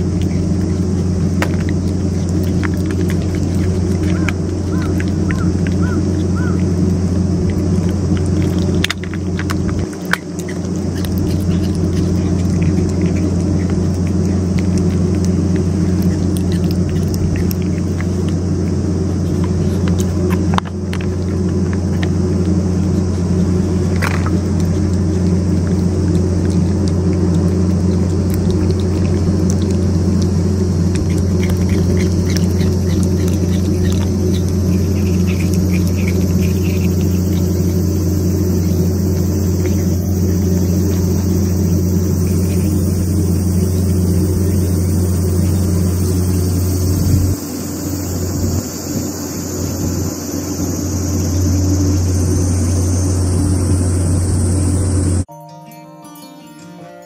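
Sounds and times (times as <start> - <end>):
low mechanical hum: 0.0 - 57.0.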